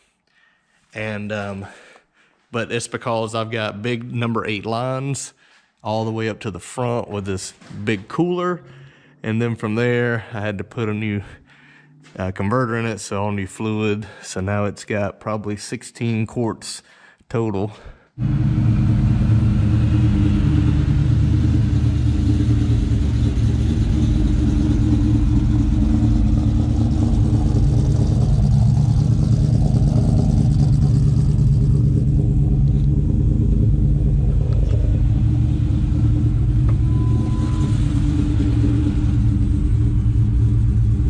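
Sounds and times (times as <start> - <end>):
car engine idling: 18.2 - 41.0.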